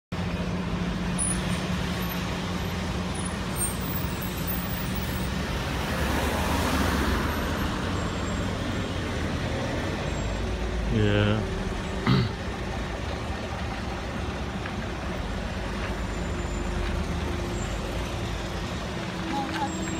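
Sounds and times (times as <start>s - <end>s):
car passing close: 1.4s - 10.1s
buses idling: 7.2s - 19.9s.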